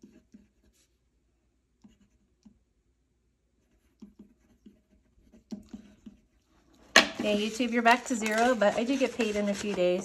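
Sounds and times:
pen scratching on paper: 0.0s - 1.1s, 1.7s - 2.6s, 3.5s - 6.4s.

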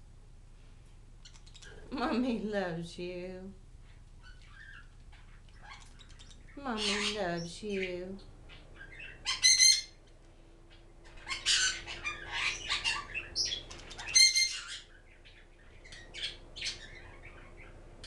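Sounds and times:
parrots chattering and chirping: 1.2s - 2.0s, 3.9s - 18.0s
parrots squawking: 4.2s - 10.0s, 10.7s - 17.8s.

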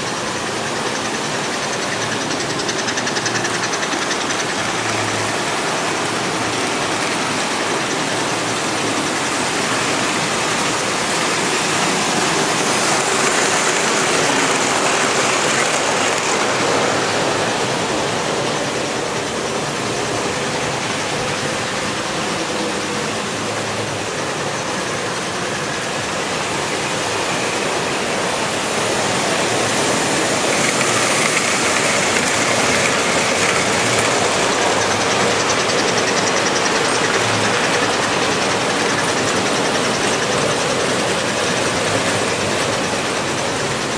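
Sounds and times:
model train motor hum: 0.0s - 43.9s
model train wheels rumbling on rails: 0.0s - 43.9s.

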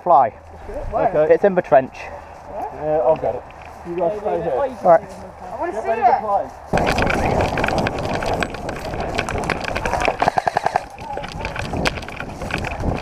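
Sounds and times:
running footsteps through dry leaves: 1.5s - 13.0s
rushing movement noise on microphone: 6.6s - 13.0s
sharp crack: 6.7s - 13.0s
rapid airsoft gunfire: 8.9s - 11.0s.

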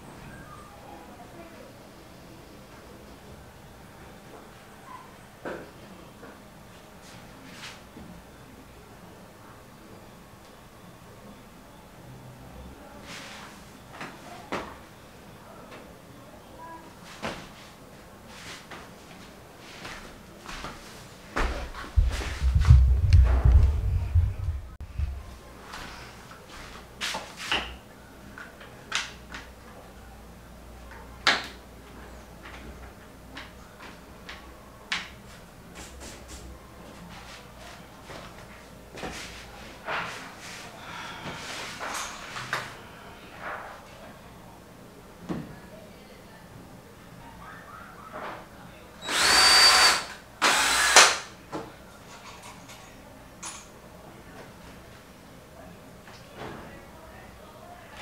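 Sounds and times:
faint low hum: 21.4s - 25.8s
cordless drill whining into wood: 49.0s - 51.2s.

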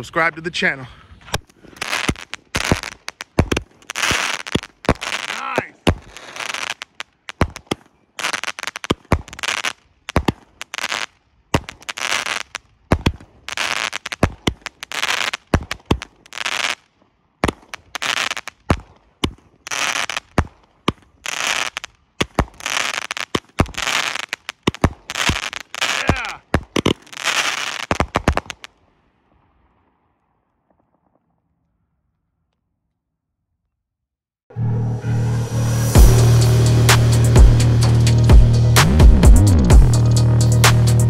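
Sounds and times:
firework shots: 1.2s - 31.2s
firework crackle: 1.2s - 31.8s.

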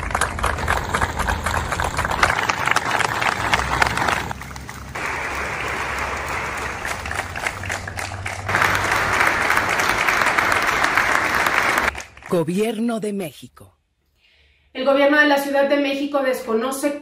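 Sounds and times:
crowd applauding: 0.0s - 12.8s.

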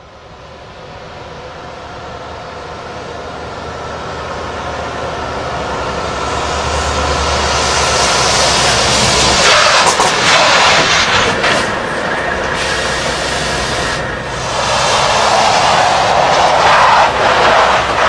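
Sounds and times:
truck engine approaching: 0.0s - 18.0s
harsh rushing noise: 6.8s - 18.0s.

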